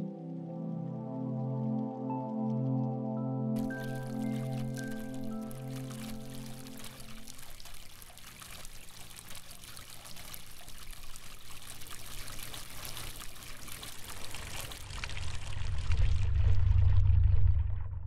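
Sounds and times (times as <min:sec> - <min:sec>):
small water splashes: 0:03.6 - 0:16.6
water pouring and trickling: 0:03.6 - 0:17.6
loud low rumble: 0:15.1 - 0:18.0.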